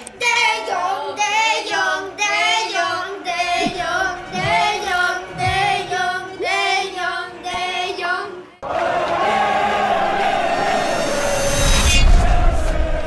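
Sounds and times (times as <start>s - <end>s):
stadium crowd noise: 8.6s - 11.3s.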